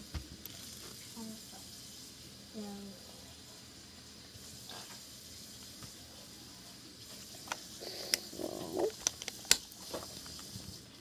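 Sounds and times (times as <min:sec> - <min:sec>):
plastic bricks clicking together: 0:07.5 - 0:09.7.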